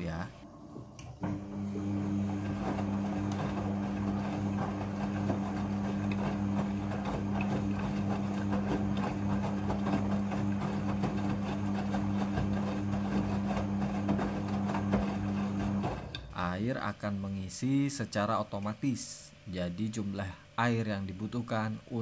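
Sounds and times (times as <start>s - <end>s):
washing machine motor hum: 0.0s - 18.2s
clothes tumbling in washing machine: 0.5s - 16.5s.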